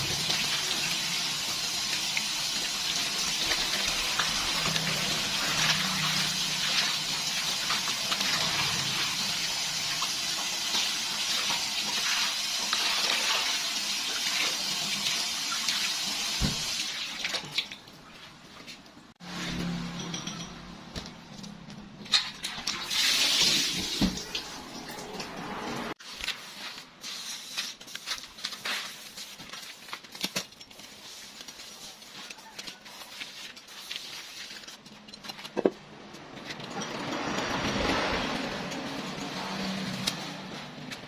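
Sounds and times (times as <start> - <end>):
clinks and knocks: 19.6 - 21.6.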